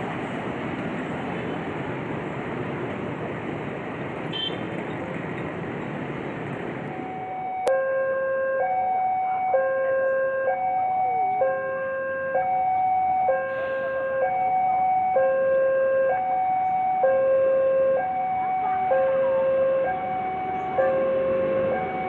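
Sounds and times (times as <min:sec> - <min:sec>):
alternating electronic warning tones: 0:06.9 - 0:22.0.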